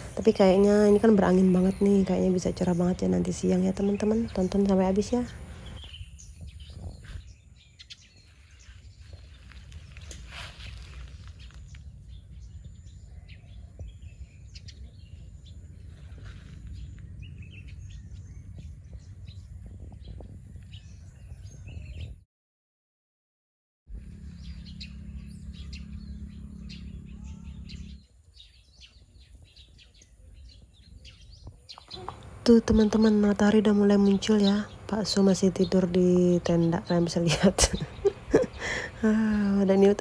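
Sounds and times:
birds chirping: 0.0s - 22.2s, 23.9s - 40.0s
wind rumble on microphone: 0.0s - 22.2s, 23.9s - 40.0s.

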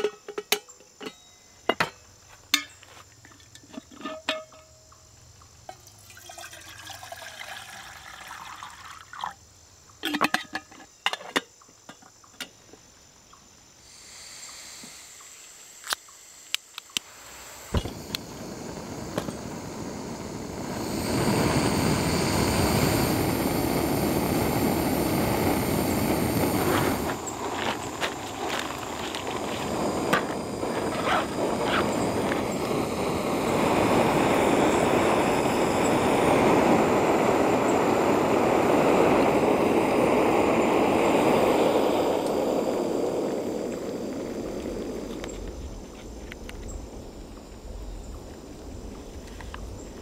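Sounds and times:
water pouring into kettle: 5.8s - 9.3s
gas stove flame hissing: 13.8s - 50.0s.

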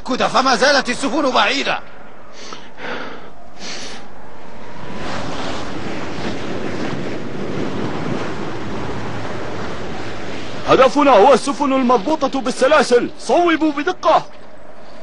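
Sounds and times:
wind: 0.0s - 15.0s
sea waves: 2.2s - 13.9s.

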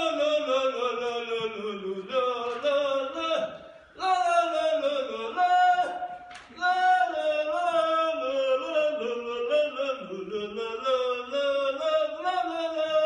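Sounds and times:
man singing: 0.0s - 13.0s.

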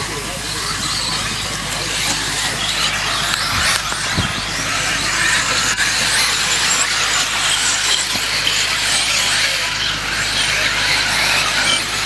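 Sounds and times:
rc car motors whining: 0.0s - 12.0s.

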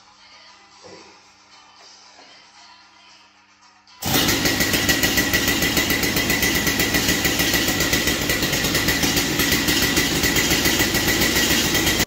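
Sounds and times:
chainsaw idling: 4.0s - 12.0s.

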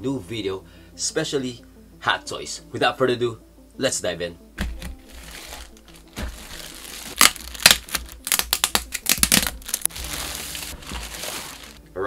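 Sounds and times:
plastic bag crinkling: 4.9s - 11.8s.

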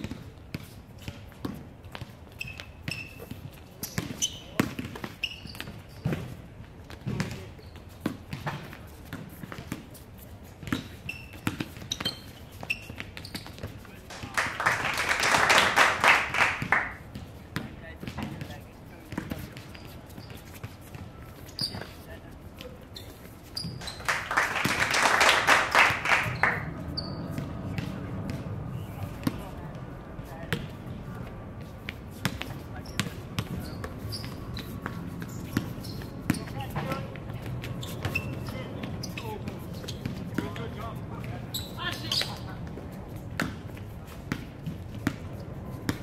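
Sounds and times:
basketball bouncing on hard court: 0.0s - 6.3s, 6.9s - 9.8s, 10.6s - 13.7s, 16.6s - 21.0s, 30.5s - 30.7s, 32.2s - 40.6s, 43.3s - 43.7s, 44.3s - 45.3s
sneaker squeaks: 0.0s - 14.0s, 16.4s - 29.6s, 30.2s - 46.0s
hand clapping: 14.2s - 17.0s, 23.9s - 26.6s.

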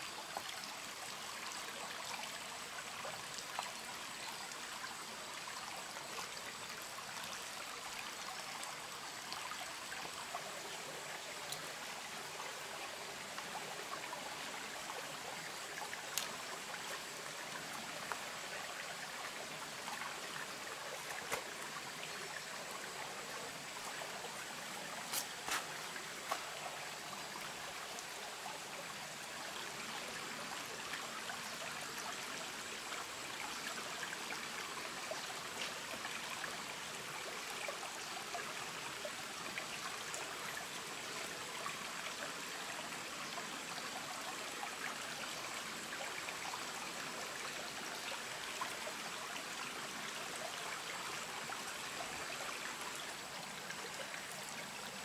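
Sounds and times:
stream running over rocks: 0.0s - 55.0s.

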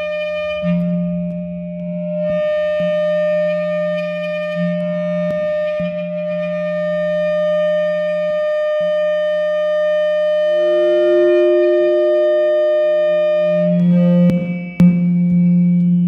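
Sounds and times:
vibraphone feedback tones: 10.6s - 14.9s.

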